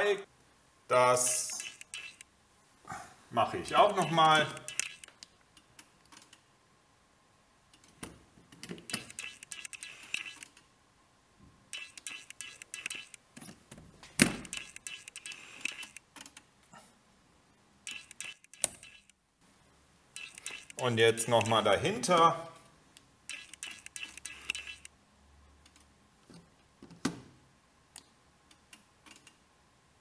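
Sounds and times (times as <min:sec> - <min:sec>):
test probes clicking and rattling: 0:01.4 - 0:02.3, 0:03.8 - 0:06.4, 0:07.7 - 0:10.6, 0:11.7 - 0:13.3, 0:14.2 - 0:16.5, 0:17.8 - 0:19.2, 0:20.1 - 0:21.6, 0:23.0 - 0:24.9.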